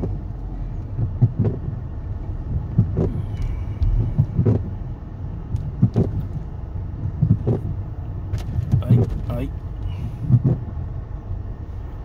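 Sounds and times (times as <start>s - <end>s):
car engine and tyre rumble: 0.0s - 12.0s
short thumps: 0.9s - 1.8s, 2.4s - 4.9s, 5.5s - 9.4s, 10.2s - 10.7s.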